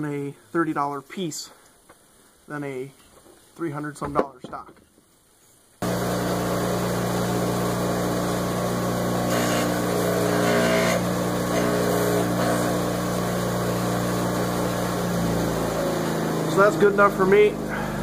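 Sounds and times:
bench grinder motor hum: 5.8 - 18.0.

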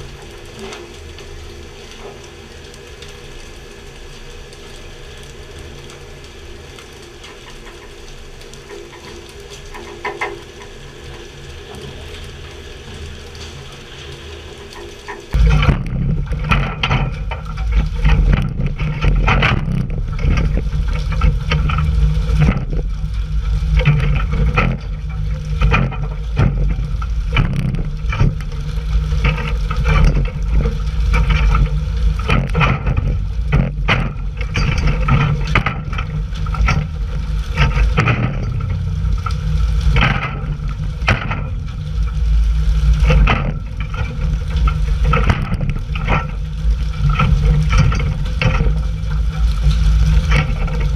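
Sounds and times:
water spray and splashing: 0.0 - 50.9
boat engine running: 15.2 - 50.9.

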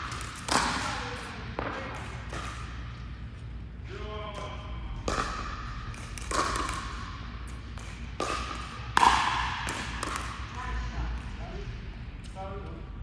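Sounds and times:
paddles striking a ball: 4.3 - 10.6.

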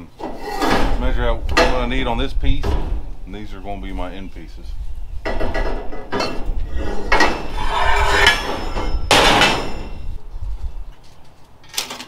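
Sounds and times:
metal bar scraping and clanking: 0.2 - 2.0, 5.3 - 10.2.

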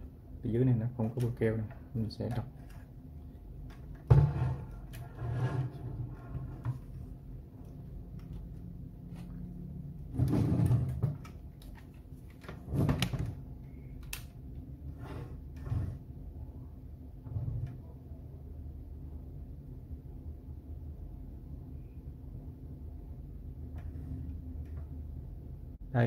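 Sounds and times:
metal case scraping: 4.1 - 6.9.

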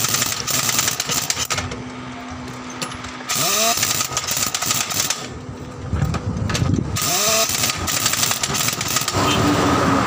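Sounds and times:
pneumatic impact wrench running: 0.0 - 1.8, 2.8 - 5.4, 6.5 - 9.5.

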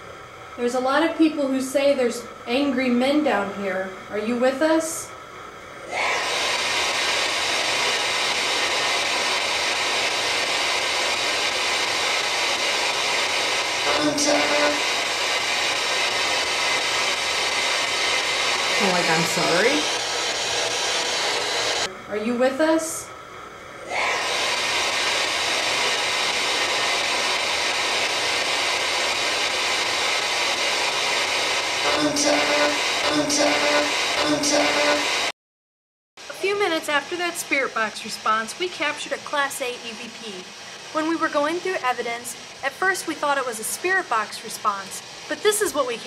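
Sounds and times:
radio static sweeping stations: 13.8 - 16.9, 18.8 - 21.9, 24.6 - 35.3.

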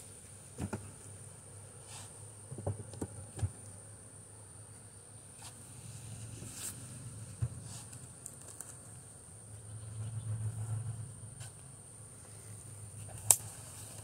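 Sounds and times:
insect chorus: 0.0 - 14.0
low hum: 8.8 - 13.9.

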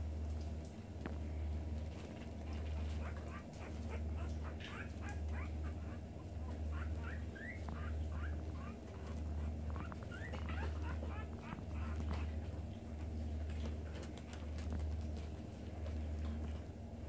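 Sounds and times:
low pulsing hum: 0.0 - 17.0
puppies squeaking and whimpering: 2.4 - 12.7.

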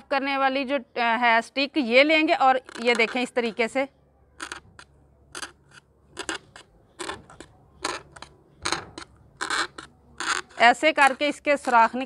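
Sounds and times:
toothpick crunching through foam: 2.6 - 3.6, 4.4 - 12.0.

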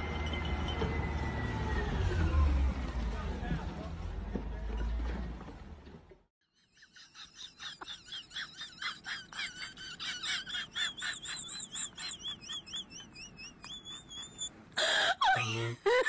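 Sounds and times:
rapid animal chirping: 11.0 - 14.5.

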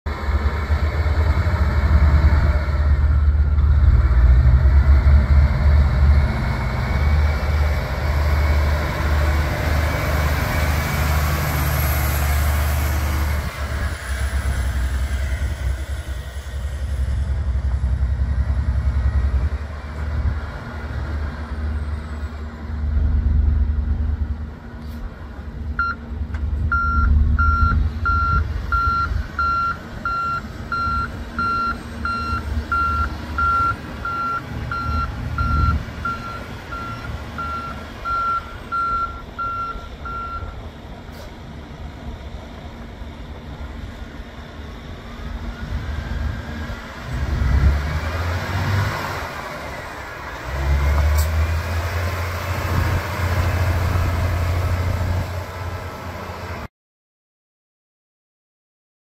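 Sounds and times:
truck diesel engine running: 0.1 - 56.7
reverse alarm beeping: 25.8 - 26.0, 26.7 - 40.6.

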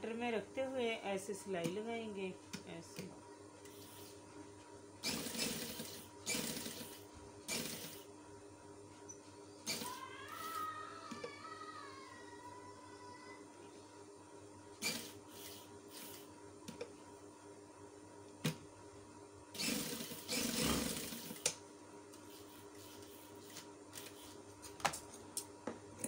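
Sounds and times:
sewing machine running: 5.0 - 8.1, 9.6 - 10.6, 14.8 - 16.3, 19.5 - 21.5.

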